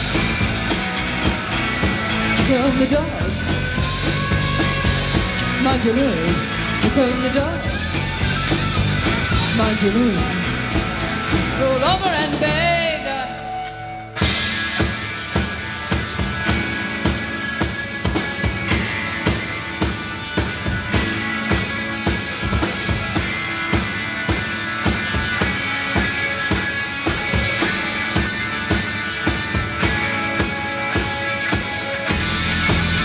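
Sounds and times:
drum kit beat: 0:00.0 - 0:13.1, 0:14.1 - 0:33.0
bass guitar: 0:00.0 - 0:33.0
electric guitar: 0:00.0 - 0:33.0.

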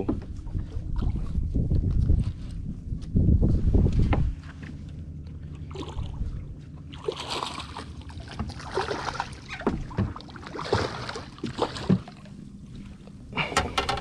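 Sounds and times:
fish thrashing and splashing: 0:05.4 - 0:12.4.

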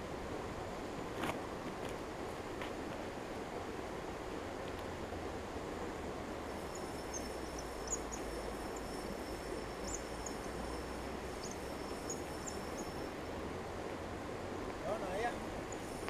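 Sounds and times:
river background noise: 0:00.0 - 0:16.0
thin high whine: 0:06.4 - 0:13.4, 0:14.9 - 0:16.0
faint high chirps: 0:06.5 - 0:13.3.

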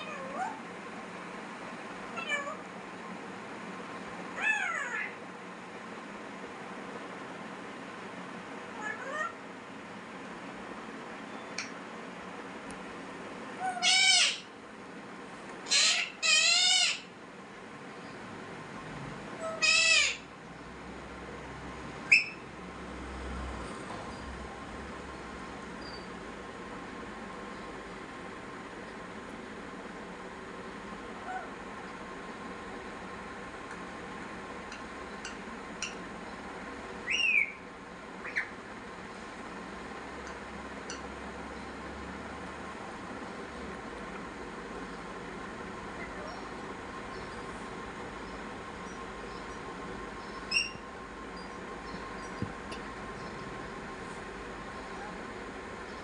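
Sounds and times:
parakeet squawks: 0:00.0 - 0:00.6, 0:04.4 - 0:05.2, 0:08.8 - 0:09.4, 0:13.6 - 0:14.5, 0:15.6 - 0:17.1, 0:19.4 - 0:20.3, 0:22.1 - 0:22.4, 0:31.2 - 0:31.5, 0:37.0 - 0:37.6, 0:38.2 - 0:38.6, 0:50.4 - 0:50.8.

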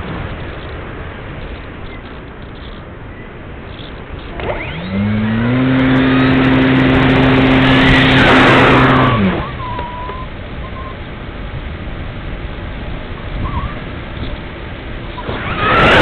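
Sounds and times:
electric motor whining: 0:04.3 - 0:09.5.

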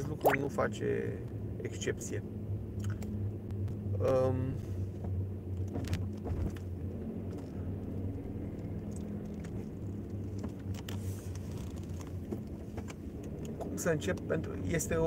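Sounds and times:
engine and road rumble in car: 0:00.0 - 0:15.0.

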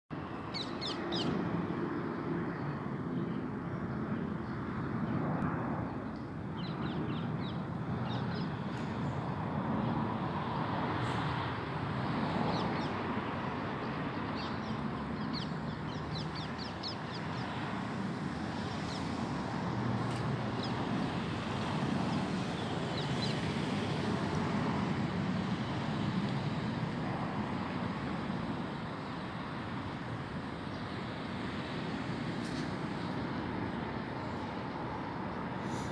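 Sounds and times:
distant jet engine rumble: 0:00.1 - 0:35.9
road traffic hum: 0:00.1 - 0:35.9
small birds chirping: 0:00.4 - 0:01.4, 0:13.8 - 0:17.8, 0:20.1 - 0:23.7.

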